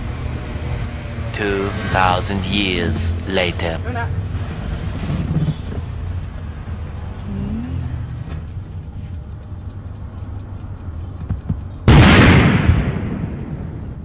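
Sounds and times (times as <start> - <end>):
electronic countdown beeps: 5.3 - 5.6, 6.2 - 6.4, 7.0 - 11.9.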